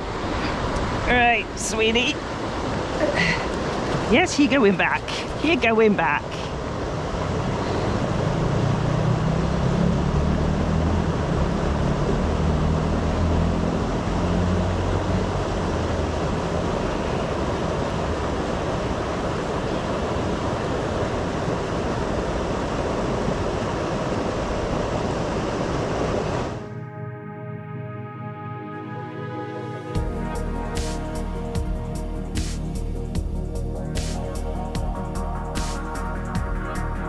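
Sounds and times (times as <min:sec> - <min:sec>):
river rushing: 0:00.0 - 0:26.7.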